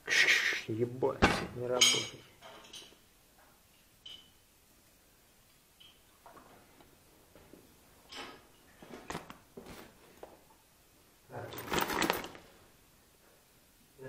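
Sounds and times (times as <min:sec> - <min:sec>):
clothing rustling scuff: 0:08.7 - 0:10.3
gear knocks and clatter: 0:11.5 - 0:12.5.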